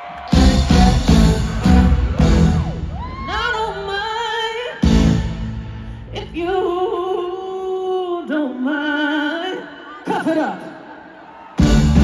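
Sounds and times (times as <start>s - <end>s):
music: 0.0s - 7.4s, 11.6s - 12.0s
woman singing: 3.2s - 4.8s, 6.1s - 10.8s.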